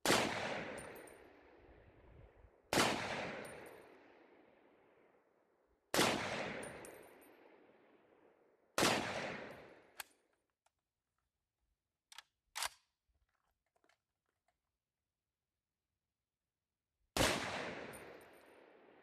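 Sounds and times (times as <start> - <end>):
rifle shots with echo: 0.0 - 2.0, 2.7 - 4.9, 5.9 - 10.0, 17.2 - 19.0.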